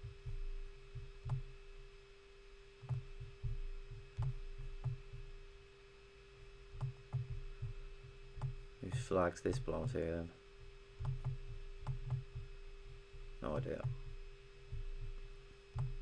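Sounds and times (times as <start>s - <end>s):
low electrical hum: 0.0s - 16.0s
computer mouse clicks: 4.2s - 5.0s, 6.8s - 7.3s, 8.4s - 9.7s, 11.0s - 12.3s, 15.8s - 16.0s.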